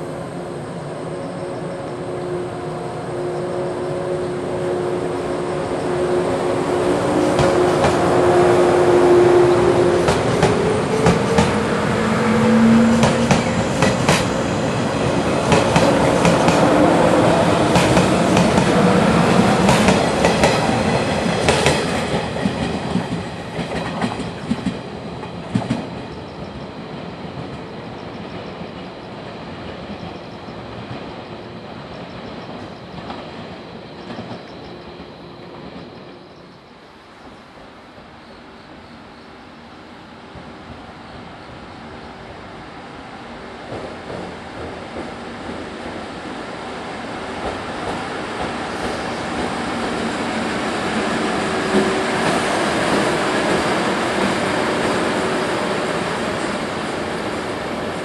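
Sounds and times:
train wheels clicking over rail joints: 10.0 - 11.8, 12.6 - 14.6, 15.2 - 28.9, 43.6 - 46.2.

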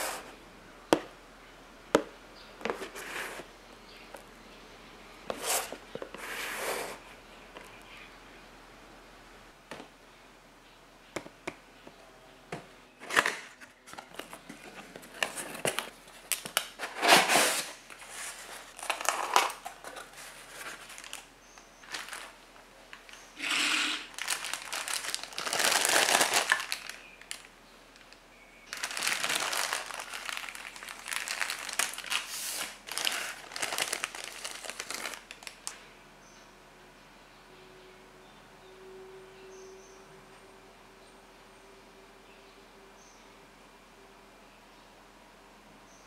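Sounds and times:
plastic and cardboard crinkling: 13.0 - 35.8.

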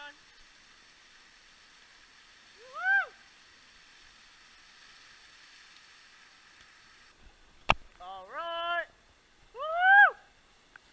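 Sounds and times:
waterfall rushing: 0.0 - 6.5.

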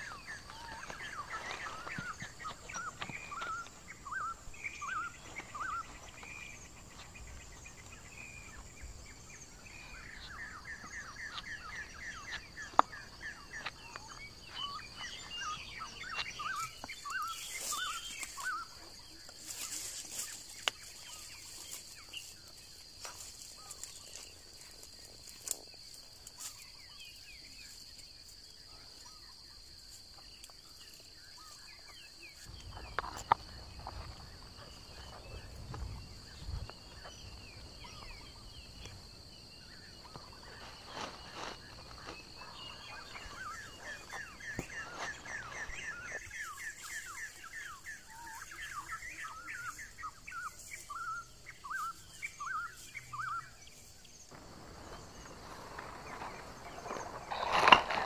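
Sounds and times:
high insect drone: 0.0 - 58.0.

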